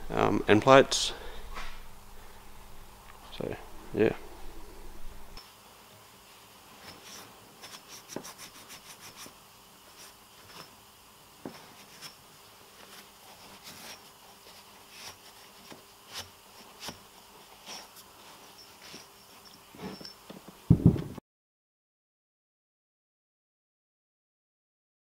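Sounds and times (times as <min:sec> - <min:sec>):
cloth rag rubbing metal rotor: 0:06.8 - 0:20.3.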